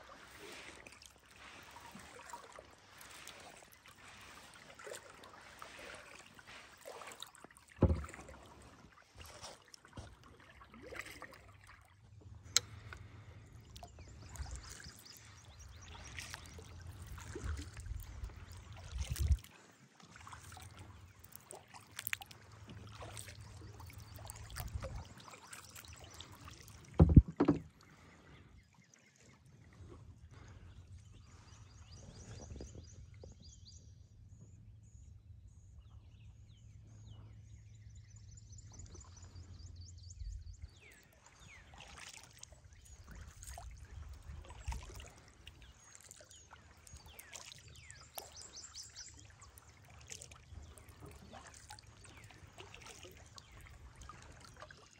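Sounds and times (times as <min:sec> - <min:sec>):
paddle splashing water: 0:00.0 - 0:33.4, 0:40.7 - 0:54.9
paddle knocking plastic hull: 0:07.7 - 0:08.6, 0:26.9 - 0:27.8.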